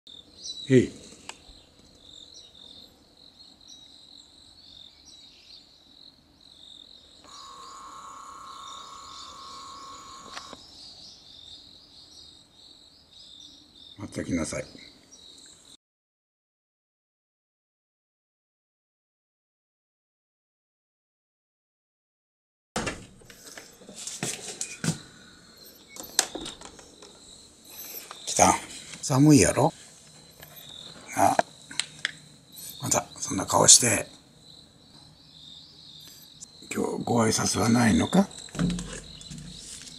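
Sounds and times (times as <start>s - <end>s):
insects chirping in rapid trills: 0.1s - 15.8s, 23.3s - 39.9s
steady high tone: 7.3s - 10.6s
faint rustling: 38.4s - 39.9s
sharp clicks and knocks: 38.4s - 39.9s.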